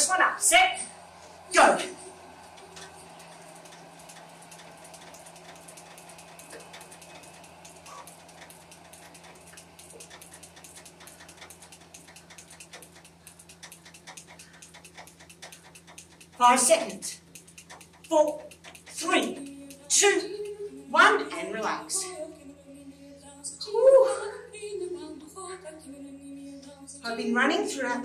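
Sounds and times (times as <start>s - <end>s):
low hum: 0.0s - 26.2s
bike rapid clicking: 0.8s - 21.9s.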